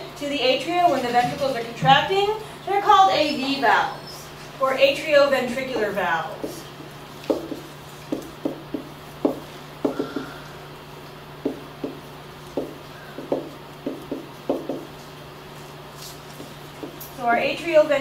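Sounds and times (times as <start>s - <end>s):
steady low hum: 0.0s - 18.0s
marker writing on whiteboard: 11.4s - 15.0s.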